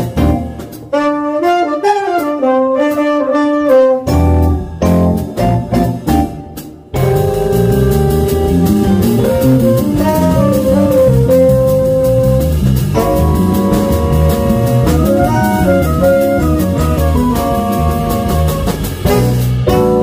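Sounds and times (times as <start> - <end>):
electric bass: 0.0 - 1.2, 4.0 - 20.0
saxophone: 0.0 - 4.6, 7.0 - 20.0
trumpet: 0.0 - 4.7, 7.0 - 20.0
keyboard: 4.2 - 20.0.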